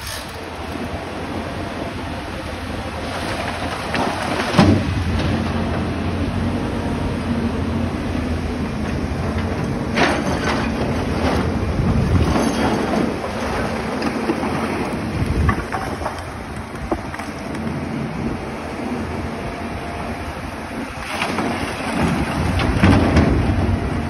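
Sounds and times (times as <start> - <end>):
excavator diesel engine: 0.0 - 24.0
rocks crashing and clattering: 10.0 - 17.7.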